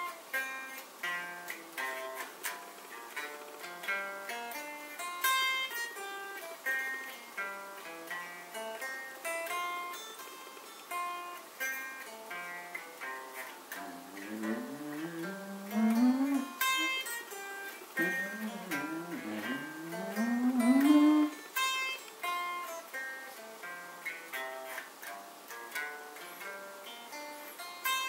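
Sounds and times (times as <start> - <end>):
electric guitar arpeggio: 12.3 - 21.4.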